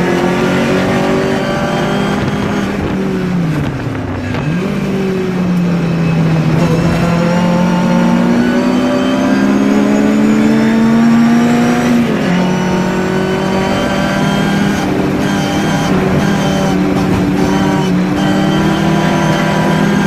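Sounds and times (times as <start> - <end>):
race car engine from inside cabin: 0.0 - 20.0.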